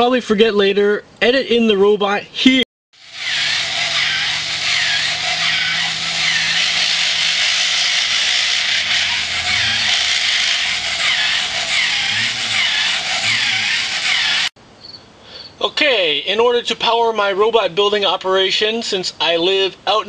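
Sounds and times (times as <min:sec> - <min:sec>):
toy robot motor whirring: 0:03.0 - 0:14.5.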